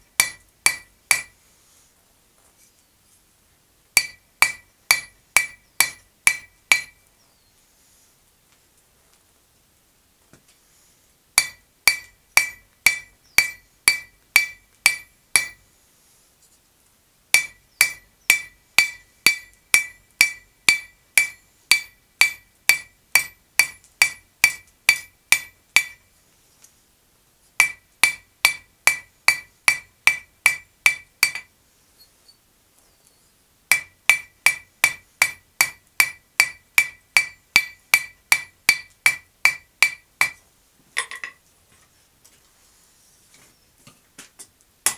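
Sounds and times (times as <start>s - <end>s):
hammer striking metal on anvil: 0.2s - 1.4s, 4.0s - 7.0s, 11.4s - 15.6s, 17.4s - 26.0s, 27.6s - 31.5s, 33.7s - 40.4s.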